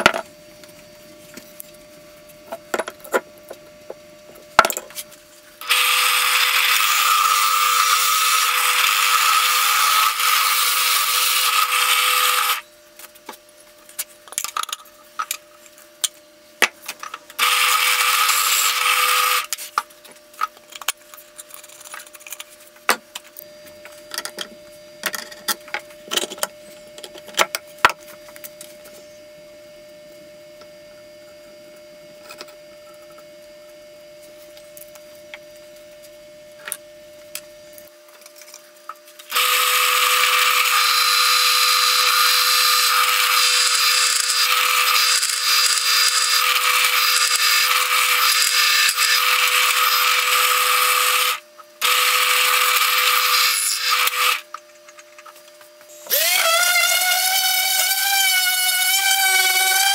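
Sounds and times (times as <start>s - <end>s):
drill press boring into plywood: 5.6s - 12.6s, 17.4s - 19.5s, 39.3s - 54.4s, 56.1s - 59.9s.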